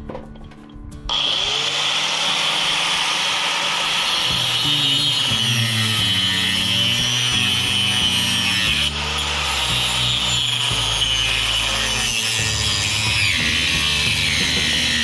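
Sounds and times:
wood being sawn: 1.1s - 15.0s
background music with bass line: 4.3s - 15.0s.

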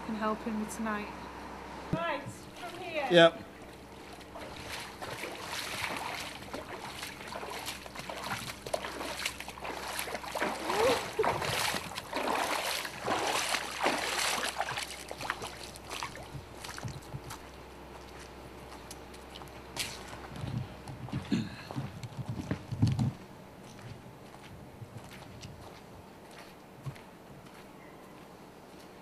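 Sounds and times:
feet wading through water: 2.5s - 3.0s, 3.6s - 22.7s.

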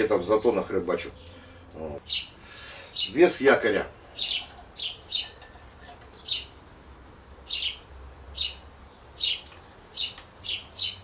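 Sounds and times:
small bird chirping: 0.4s - 3.2s, 4.0s - 11.0s.

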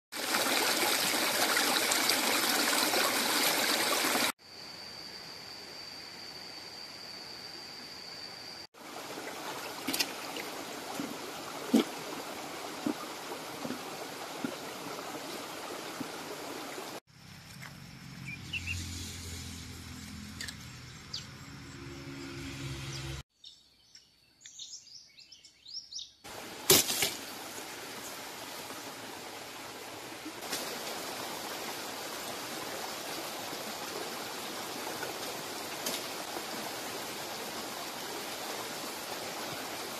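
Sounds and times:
stream water rushing: 0.1s - 4.3s, 8.8s - 17.0s, 26.3s - 39.9s
bird song: 18.1s - 18.9s, 20.4s - 22.2s, 22.8s - 26.3s.

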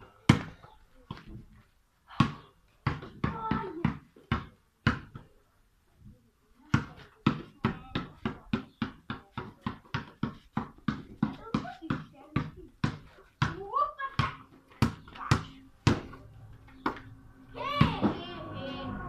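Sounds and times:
basketball bouncing: 2.1s - 5.2s, 6.7s - 17.0s.

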